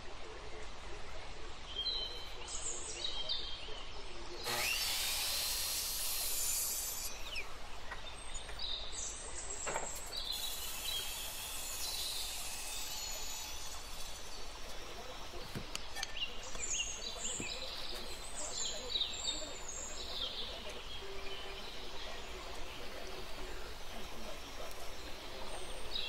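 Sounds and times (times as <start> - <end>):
band saw cutting wood: 4.4 - 8.5, 9.7 - 16.1
miter saw cutting wood: 4.4 - 8.6, 9.8 - 21.9.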